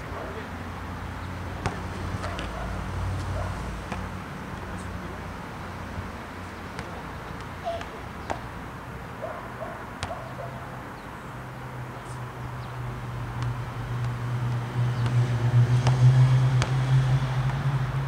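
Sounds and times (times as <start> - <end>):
basketball bouncing on asphalt: 1.3 - 4.8, 5.9 - 8.7, 9.6 - 10.5, 12.7 - 17.8
passing car engine hum: 13.8 - 18.0.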